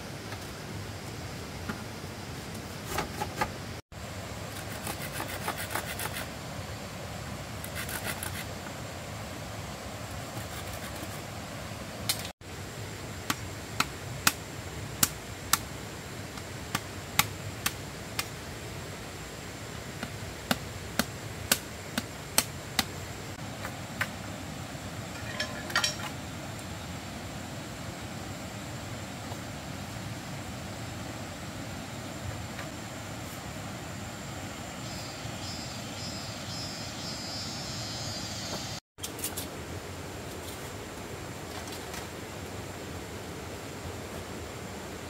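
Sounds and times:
steady hiss: 0:00.0 - 0:45.0
machete scraping bamboo: 0:04.6 - 0:06.3, 0:07.6 - 0:08.5.

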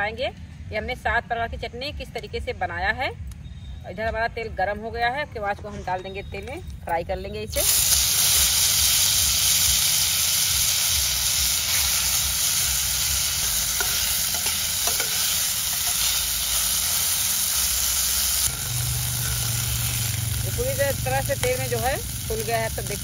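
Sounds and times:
pods sizzling in hot oil: 0:07.5 - 0:23.0
spatula turning food in pan: 0:07.6 - 0:23.0
low hum: 0:10.5 - 0:23.0.

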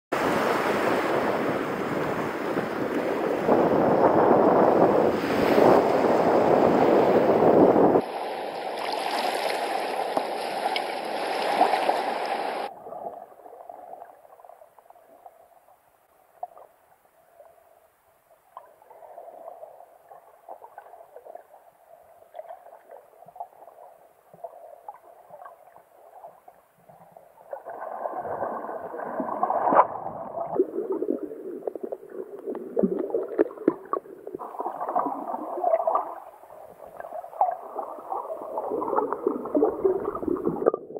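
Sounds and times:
surf: 0:00.1 - 0:13.7
wind: 0:00.1 - 0:40.9
muffled underwater wash: 0:00.2 - 0:40.9
crackles and clicks: 0:29.6 - 0:36.2, 0:36.9 - 0:40.9.

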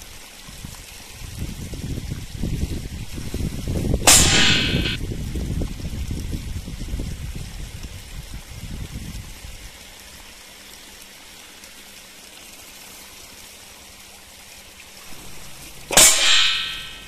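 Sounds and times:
water trickling: 0:00.0 - 0:17.0
loud metallic clang: 0:04.0 - 0:05.0, 0:15.1 - 0:17.0.

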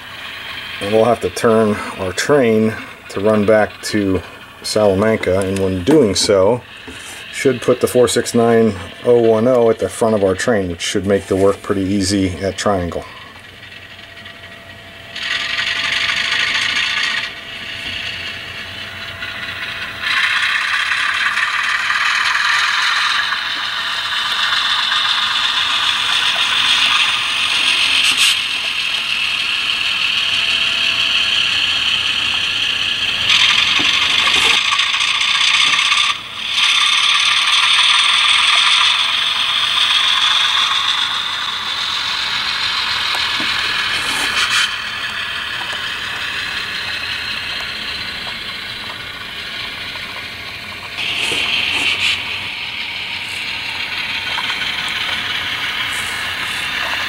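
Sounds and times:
model locomotive motor whirring: 0:00.0 - 0:57.0.

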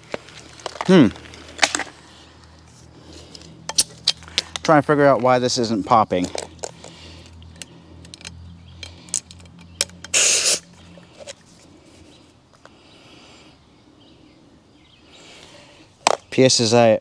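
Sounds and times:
tire inflator humming: 0:06.5 - 0:13.2
air hissing: 0:10.0 - 0:10.7.

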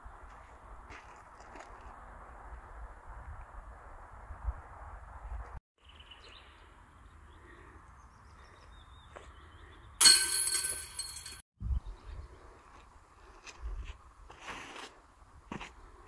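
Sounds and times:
outdoor ambience: 0:00.0 - 0:16.0
disc striking metal chains: 0:10.0 - 0:11.4.

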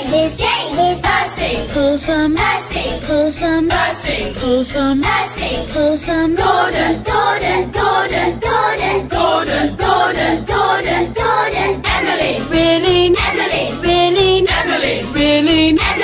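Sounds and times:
choir singing children's song: 0:00.0 - 0:16.0.

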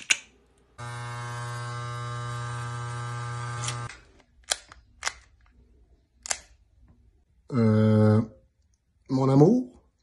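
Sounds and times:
electric hair clippers buzzing: 0:00.8 - 0:04.2.

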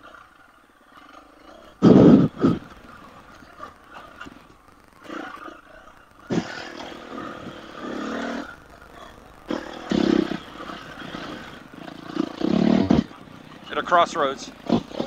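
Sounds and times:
dirt bike engine revving: 0:06.3 - 0:08.6, 0:09.5 - 0:15.0.

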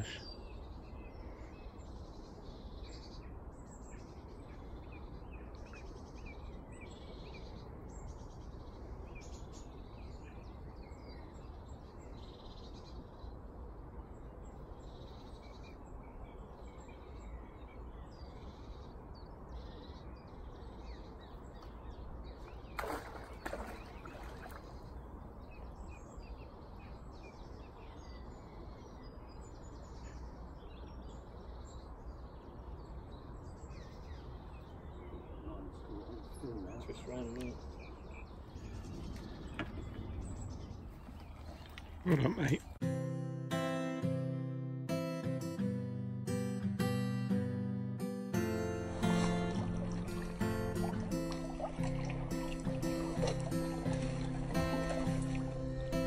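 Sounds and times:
birds singing and calling: 0:00.0 - 0:47.4, 0:48.0 - 0:56.0
fish splashing at the surface: 0:22.7 - 0:25.0, 0:49.0 - 0:55.8.

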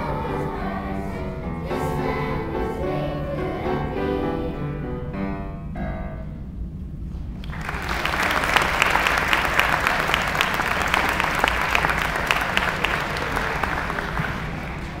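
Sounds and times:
audience applauding: 0:07.4 - 0:15.0.

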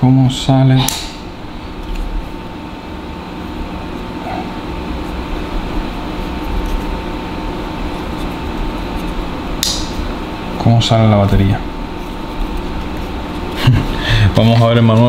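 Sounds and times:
ventilation hum and hiss: 0:00.0 - 0:15.0.

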